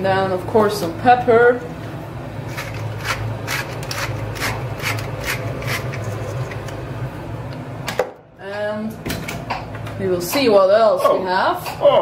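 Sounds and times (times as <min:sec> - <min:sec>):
steady low hum: 0:00.0 - 0:12.0
pepper mill grinding: 0:02.4 - 0:06.8.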